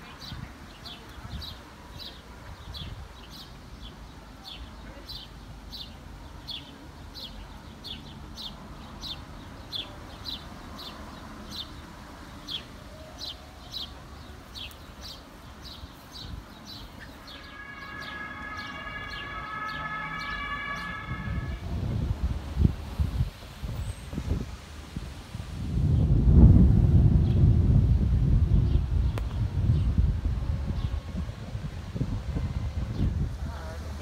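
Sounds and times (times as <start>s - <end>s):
bird chirping: 0.0s - 21.6s
steady multi-pitch tone: 17.1s - 22.0s.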